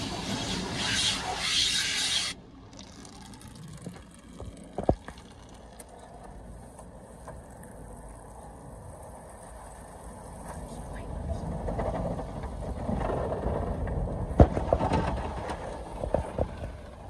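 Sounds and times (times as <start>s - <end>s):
water spraying on windshield: 0.0s - 4.2s
muffled car wash machinery: 0.0s - 17.0s.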